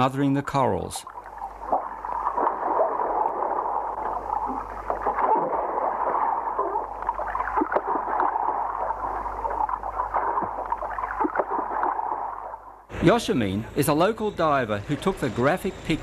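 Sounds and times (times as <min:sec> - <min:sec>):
underwater crackles and gurgles: 0:01.1 - 0:12.9.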